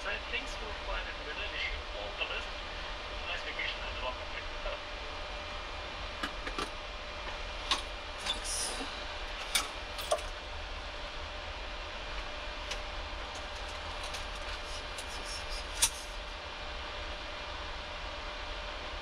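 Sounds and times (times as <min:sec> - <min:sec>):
air systems hum and hiss: 0:00.0 - 0:19.0
clicks of cockpit controls: 0:07.7 - 0:08.4, 0:09.3 - 0:10.3.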